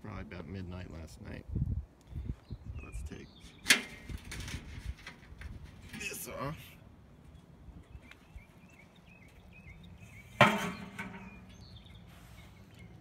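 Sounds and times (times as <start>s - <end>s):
metal drum lid clanking: 3.6s - 6.3s, 10.4s - 11.6s.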